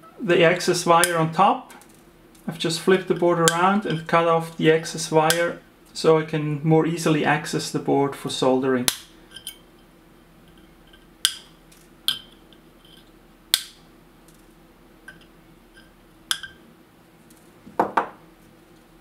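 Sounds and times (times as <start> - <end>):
dull knock: 17.8 - 18.2.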